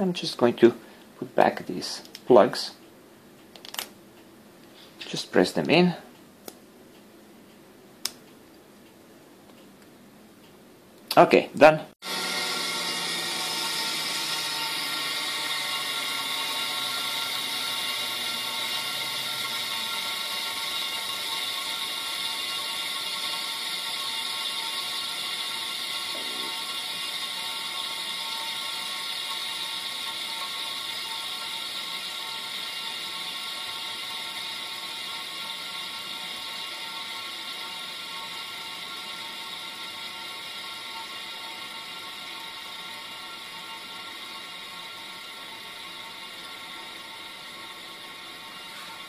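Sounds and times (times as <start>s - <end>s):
low hum sliding down: 12.0s - 22.4s
fidget spinner whirring: 12.0s - 49.0s.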